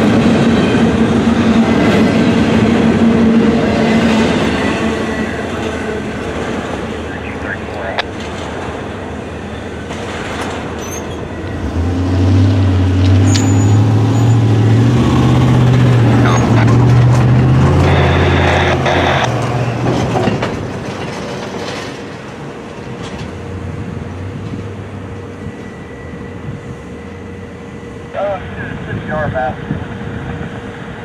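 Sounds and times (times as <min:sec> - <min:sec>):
low engine drone: 0:00.0 - 0:10.6, 0:11.4 - 0:21.0
freight train rolling: 0:00.0 - 0:31.0.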